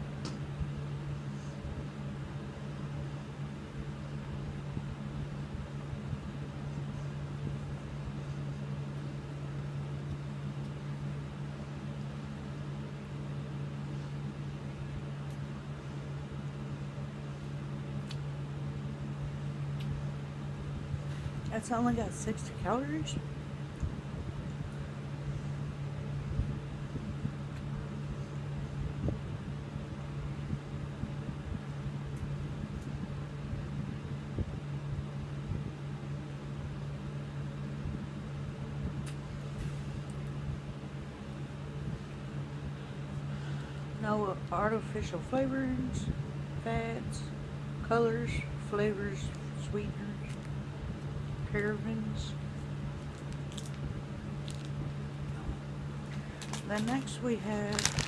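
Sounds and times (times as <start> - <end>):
appliance motor hum: 0.0 - 58.0
snack wrapper crinkling: 53.0 - 53.8, 54.4 - 54.8, 56.2 - 58.0.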